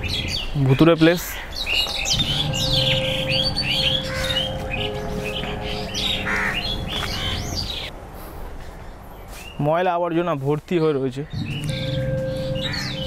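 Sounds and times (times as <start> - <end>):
birds chirping and squawking: 0.0 - 7.9, 11.2 - 13.0
low hum of held tones: 2.1 - 7.9, 11.4 - 13.0.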